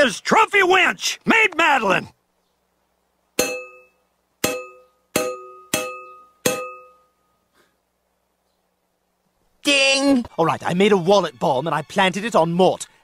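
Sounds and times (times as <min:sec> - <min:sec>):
ringing metallic clangs: 0:03.4 - 0:07.3.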